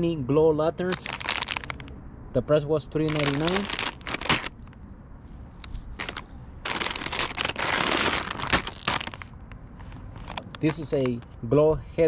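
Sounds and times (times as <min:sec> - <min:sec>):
plastic bags crinkling: 0:00.9 - 0:01.9, 0:03.0 - 0:04.8, 0:05.9 - 0:09.5, 0:10.1 - 0:11.3
plastic rustling: 0:00.9 - 0:01.9, 0:03.1 - 0:04.8, 0:05.6 - 0:11.4.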